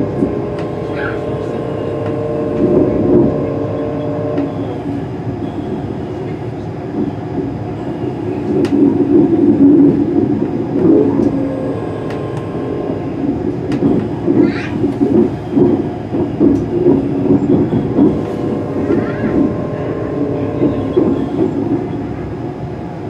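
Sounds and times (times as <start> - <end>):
wavering squeal: 0.0 - 6.1, 17.0 - 22.1
train hum inside carriage: 0.0 - 23.0.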